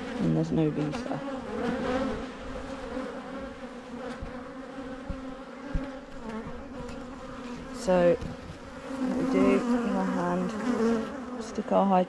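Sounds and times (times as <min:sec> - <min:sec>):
honeybee colony buzzing: 0:00.0 - 0:12.0
soft low knocks: 0:04.1 - 0:07.0.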